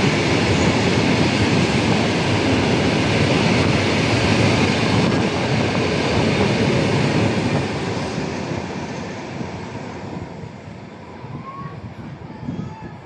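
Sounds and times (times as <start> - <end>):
freight train rolling on rails: 0.0 - 13.0.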